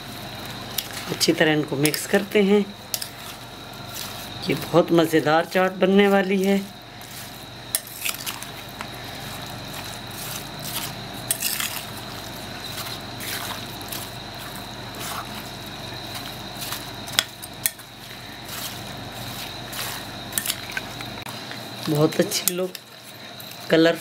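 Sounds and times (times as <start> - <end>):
wet squelching and sloshing: 2.8 - 22.0.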